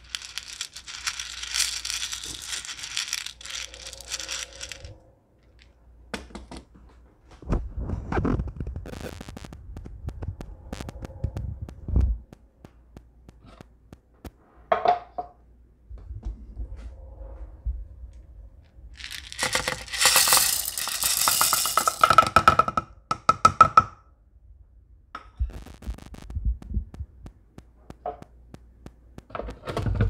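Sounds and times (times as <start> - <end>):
popcorn kernels rattling: 0.0 - 5.7, 19.0 - 22.5
scattered clicks: 8.8 - 14.4.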